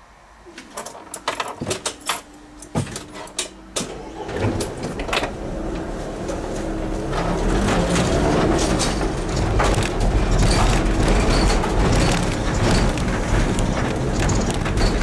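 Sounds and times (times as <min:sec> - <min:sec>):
car engine running: 0:03.9 - 0:15.0
sharp clicks and knocks: 0:07.2 - 0:15.0.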